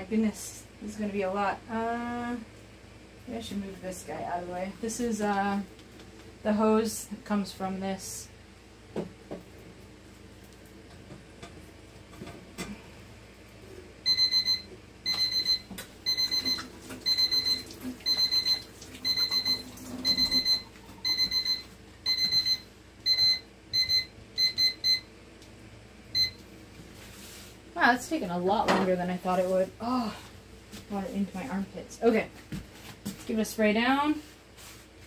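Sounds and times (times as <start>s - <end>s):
timer alarm beeping: 14.0s - 25.1s, 26.1s - 26.4s.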